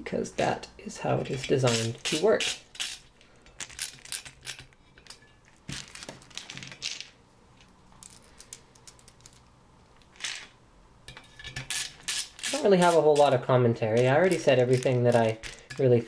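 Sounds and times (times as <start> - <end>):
screwdriver clicks and scrapes: 1.3 - 5.3.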